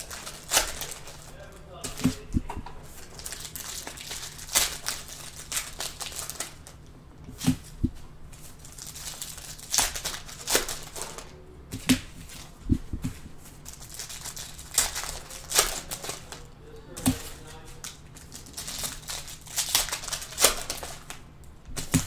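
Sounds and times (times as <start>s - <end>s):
foil packs tearing and crinkling: 0.0s - 2.2s, 2.9s - 6.8s, 8.6s - 11.3s, 13.6s - 16.4s, 17.1s - 21.2s.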